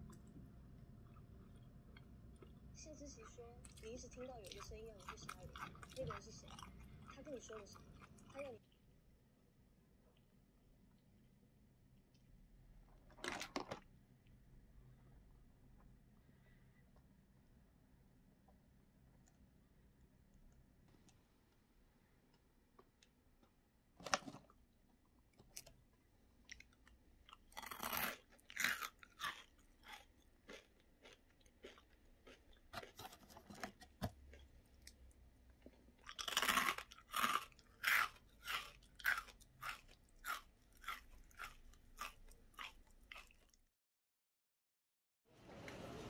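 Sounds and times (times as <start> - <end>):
crunchy snack chewing: 3.6 - 8.6, 25.4 - 43.7.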